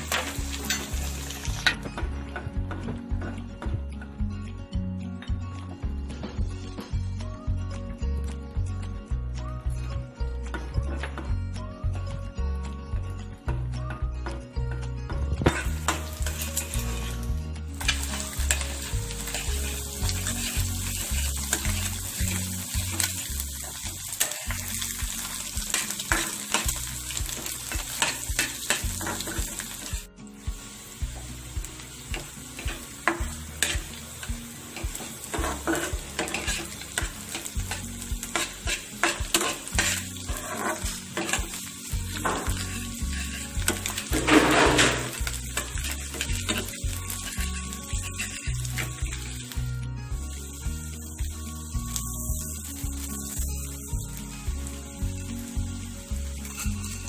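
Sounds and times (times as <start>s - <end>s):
food sizzling in hot oil: 0.0s - 3.4s, 15.4s - 57.0s
metal spatula scraping pan: 15.4s - 17.2s, 17.8s - 24.6s, 25.3s - 29.9s, 32.1s - 34.0s, 34.8s - 49.6s, 56.4s - 57.0s.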